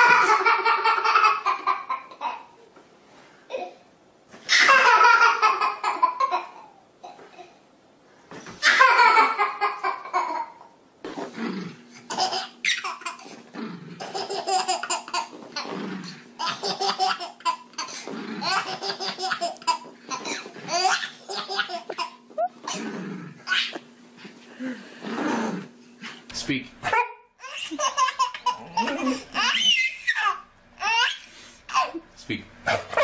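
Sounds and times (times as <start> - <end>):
baby laughing: 0.0 - 2.6, 4.5 - 7.2, 8.6 - 10.7, 12.1 - 13.3, 14.0 - 15.8, 16.4 - 23.9, 26.9 - 32.0.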